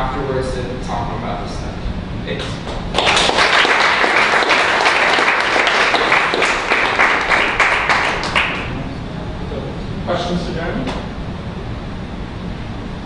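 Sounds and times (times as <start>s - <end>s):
audience applauding: 2.9s - 8.8s.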